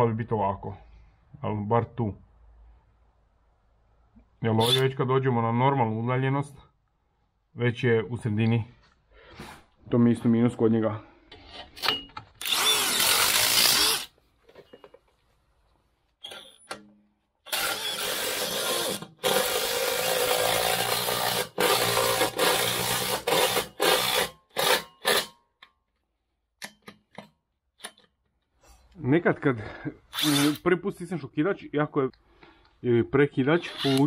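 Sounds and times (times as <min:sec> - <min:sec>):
impact driver bursts: 0:12.4 - 0:14.1, 0:17.5 - 0:25.3, 0:30.2 - 0:30.6, 0:33.7 - 0:34.0.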